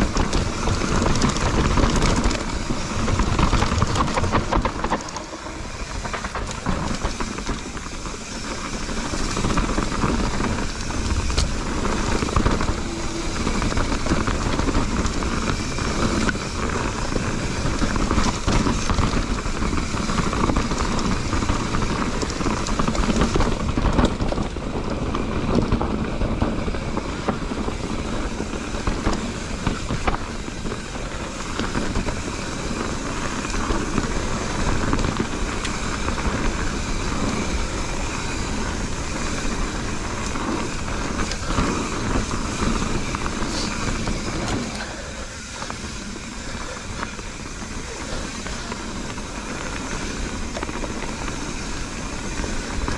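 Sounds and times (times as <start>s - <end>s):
bike chain and frame rattling: 0.0s - 52.9s
bike tyres rolling over gravel: 0.0s - 52.9s
wind rumble on microphone: 0.0s - 52.9s.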